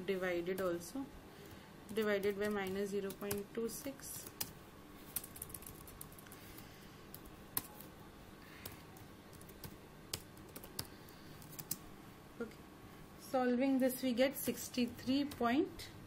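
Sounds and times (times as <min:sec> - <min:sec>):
keyboard and mouse clicks: 0:05.1 - 0:06.4, 0:08.6 - 0:11.8.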